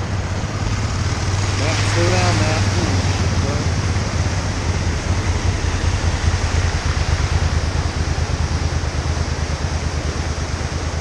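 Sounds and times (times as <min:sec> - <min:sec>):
floodwater rushing over concrete: 0:00.0 - 0:11.0
motorcycle engine idling: 0:00.0 - 0:11.0.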